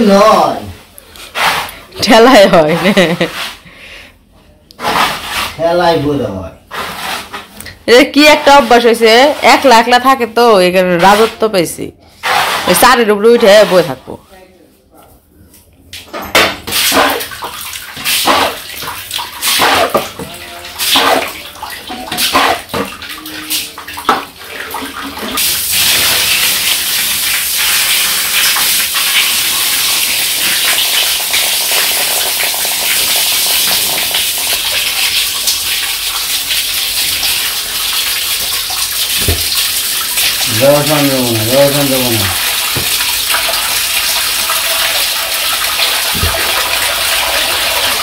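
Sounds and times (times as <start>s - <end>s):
hose water pouring into trough: 16.7s - 48.0s
water swishes and splashes: 16.8s - 30.8s.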